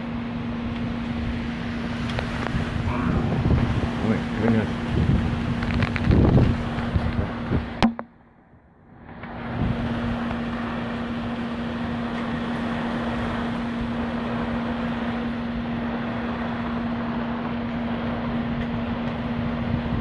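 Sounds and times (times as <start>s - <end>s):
wind-driven rain: 0.0s - 7.9s, 8.9s - 20.0s
wind rushing: 1.3s - 7.8s, 8.8s - 10.9s.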